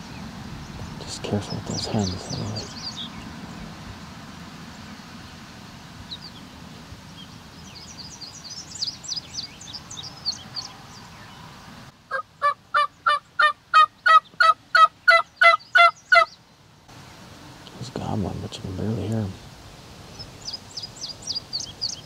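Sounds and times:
faint songbird chirps: 0.0s - 5.4s, 6.0s - 16.9s, 20.0s - 22.0s
outdoor hiss: 0.0s - 15.4s, 16.0s - 22.0s
turkey yelps: 12.1s - 16.3s.

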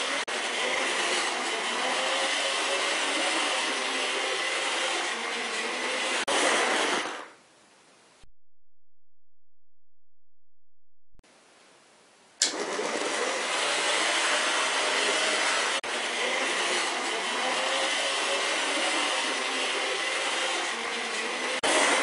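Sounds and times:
model train motor whirring: 0.0s - 7.3s, 12.7s - 22.0s.

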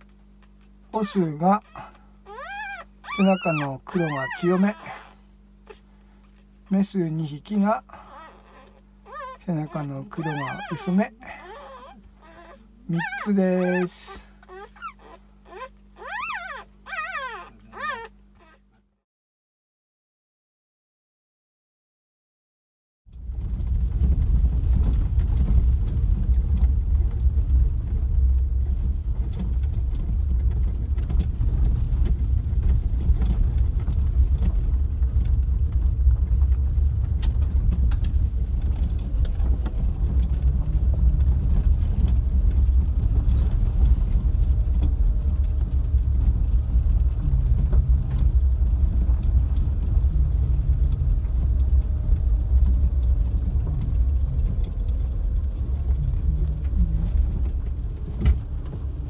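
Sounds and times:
vehicle engine and tyre rumble: 23.1s - 59.0s
small ticks: 44.1s - 58.8s.

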